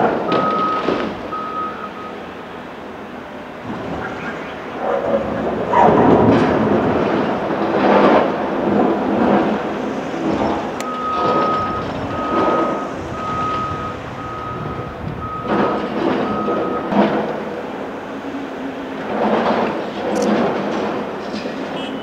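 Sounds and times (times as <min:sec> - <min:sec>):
diesel engine running: 0:00.0 - 0:22.0
reversing alarm beeps: 0:00.3 - 0:02.3, 0:03.6 - 0:05.7, 0:10.8 - 0:17.3.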